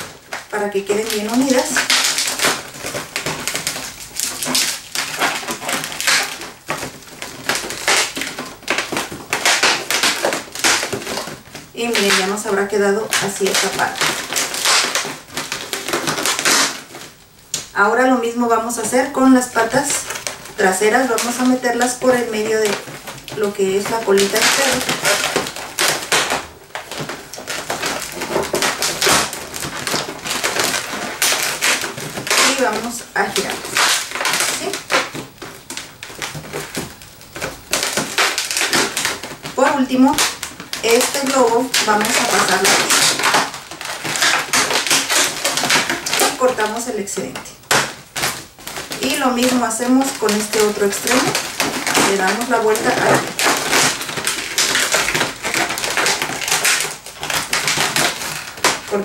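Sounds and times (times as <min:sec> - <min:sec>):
balloons squeaking and rubbing: 0:00.0 - 0:59.0.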